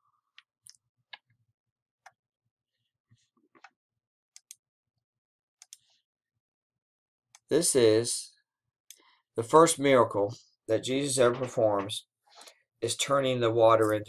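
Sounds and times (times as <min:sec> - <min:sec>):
computer mouse clicks: 0:04.4 - 0:04.6.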